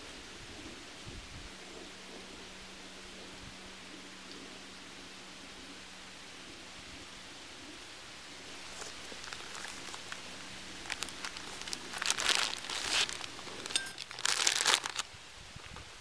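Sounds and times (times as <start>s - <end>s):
fabric rustling and crinkling: 8.5s - 15.1s.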